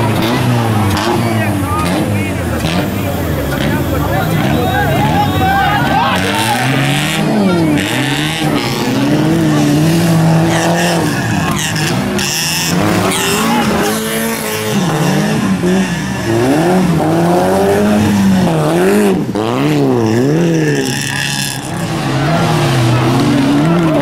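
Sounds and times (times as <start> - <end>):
race car engines revving: 0.0 - 24.0.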